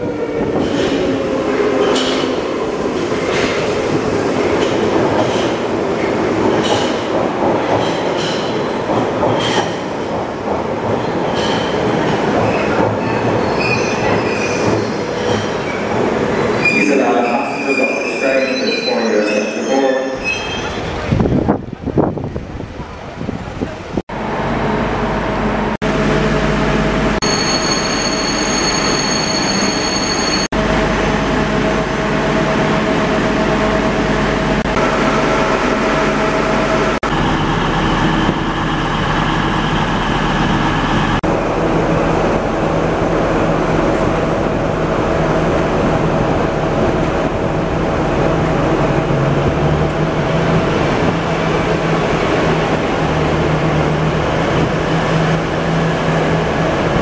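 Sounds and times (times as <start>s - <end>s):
diesel train engines idling: 30.6s - 57.0s.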